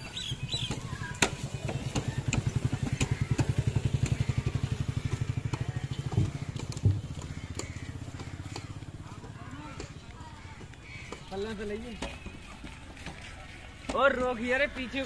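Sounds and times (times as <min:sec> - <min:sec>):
diesel pump engine chugging: 0:00.0 - 0:14.6.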